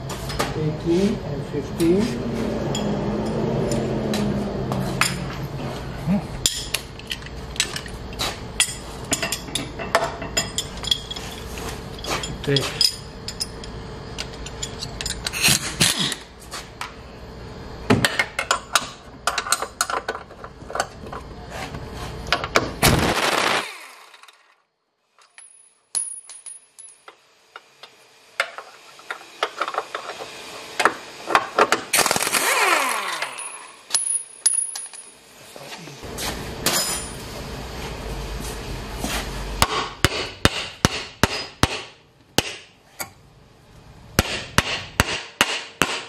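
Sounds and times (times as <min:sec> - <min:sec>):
motor whine winding down: 0:01.4 - 0:05.9, 0:31.9 - 0:33.8
metal tools clinking: 0:06.4 - 0:15.6, 0:25.2 - 0:27.1, 0:33.2 - 0:35.2, 0:36.7 - 0:37.2
impact wrench hammering: 0:39.6 - 0:43.1, 0:44.2 - 0:46.0.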